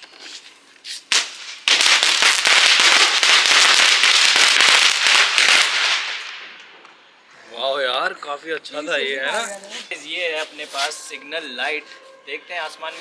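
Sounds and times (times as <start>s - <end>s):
firecracker crackling: 0.0s - 7.0s, 9.6s - 11.2s.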